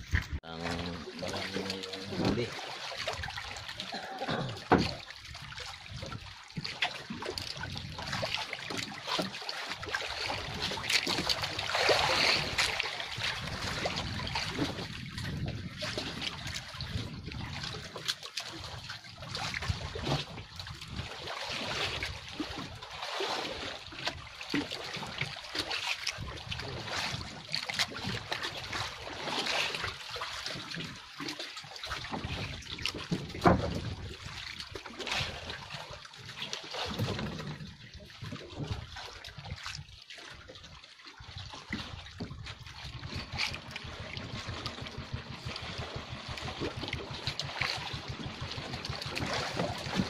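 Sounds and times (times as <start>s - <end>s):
water lapping against boat hull: 0.0s - 50.0s.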